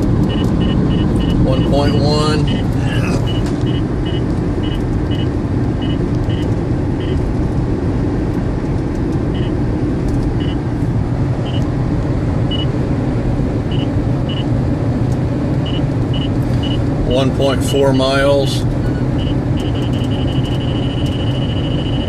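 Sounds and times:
road noise inside car: 0.0s - 22.0s
radar detector beeps: 0.2s - 7.2s, 9.3s - 9.6s, 10.4s - 10.6s, 11.4s - 11.6s, 12.5s - 12.7s, 13.7s - 14.5s, 15.6s - 16.8s, 18.8s - 22.0s.

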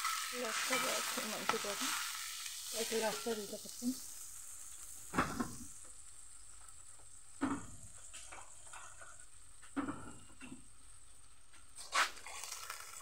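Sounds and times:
eggs being stirred: 0.0s - 4.0s
food sizzling in oil: 0.0s - 13.0s.

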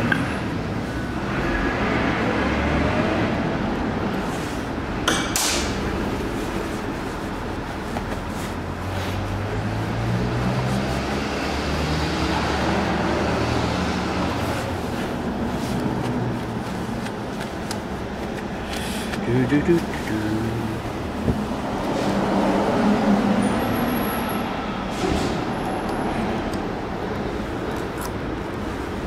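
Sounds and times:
workshop background hum: 3.7s - 11.2s, 13.2s - 22.6s
light handling noises: 14.4s - 20.2s.

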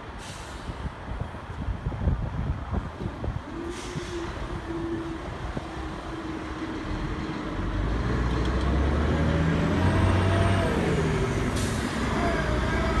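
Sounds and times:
bus engine pulling away: 0.0s - 1.4s, 2.8s - 13.0s
air brakes hissing: 0.1s - 0.9s, 3.6s - 4.6s, 11.4s - 12.2s.

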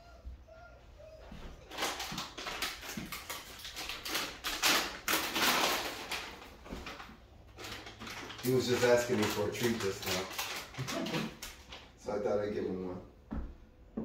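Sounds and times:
dog whining: 0.0s - 2.5s, 10.8s - 11.4s.

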